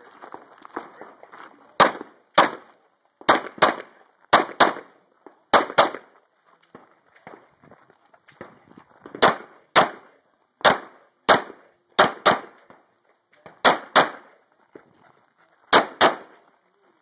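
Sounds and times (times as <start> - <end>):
pistol shots: 1.8 - 6.1, 9.1 - 12.7, 13.5 - 14.4, 15.7 - 16.4.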